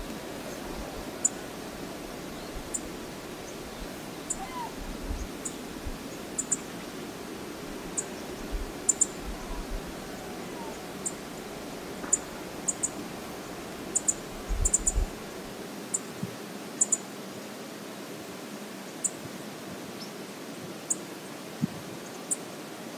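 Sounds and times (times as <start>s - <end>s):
wind rumble on microphone: 0.0s - 6.2s, 7.6s - 11.9s, 14.2s - 15.6s
wind hissing: 0.0s - 15.9s.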